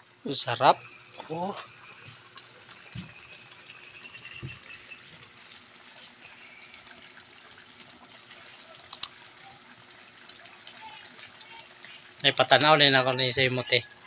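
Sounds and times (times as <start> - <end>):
sauce simmering in a wok: 0.0 - 14.0.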